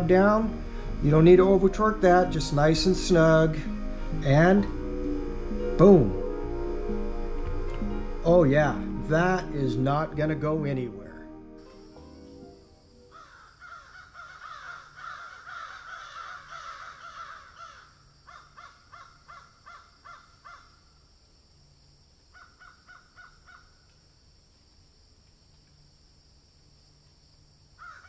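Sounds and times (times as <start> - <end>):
crow-like bird calls: 13.1 - 20.8, 22.3 - 23.8, 27.8 - 28.0.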